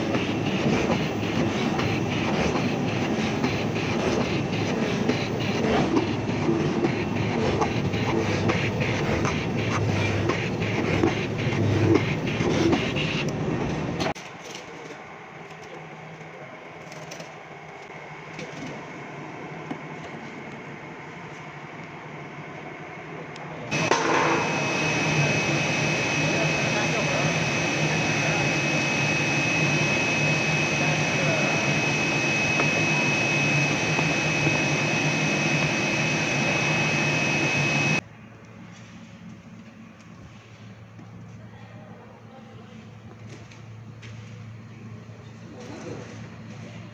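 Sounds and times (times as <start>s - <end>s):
cutting machine running: 0.0s - 13.2s, 23.7s - 38.0s
machine hum with faint whine: 0.0s - 46.9s
vacuum blower rushing and whining: 23.7s - 38.0s.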